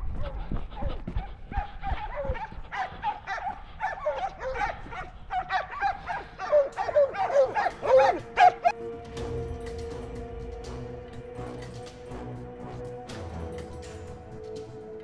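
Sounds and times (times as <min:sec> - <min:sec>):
dogs barking rapidly: 0:00.0 - 0:08.8.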